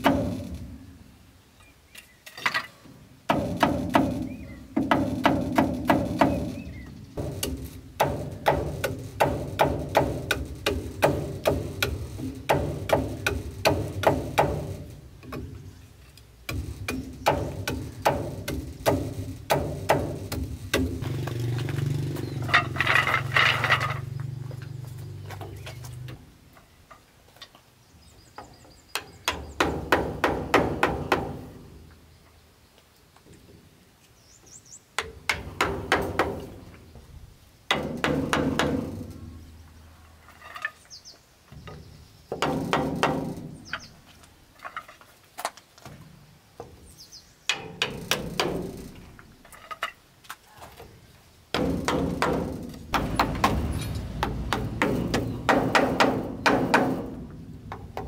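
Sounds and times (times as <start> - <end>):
hammer striking wood: 3.3 - 6.6, 7.2 - 15.5, 16.5 - 21.3, 29.0 - 31.6, 35.0 - 36.7, 37.7 - 39.0, 42.3 - 43.6, 51.5 - 58.0.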